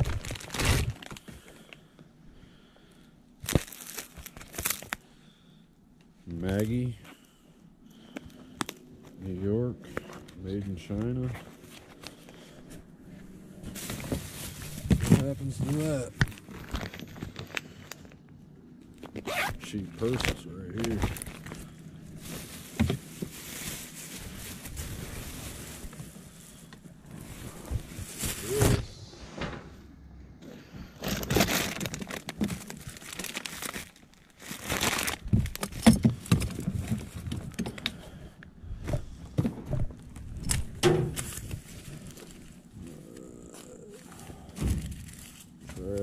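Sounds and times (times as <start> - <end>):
plastic bag crinkling: 0.0 - 1.8, 3.4 - 5.0, 13.5 - 28.7, 31.0 - 37.6, 44.0 - 46.0.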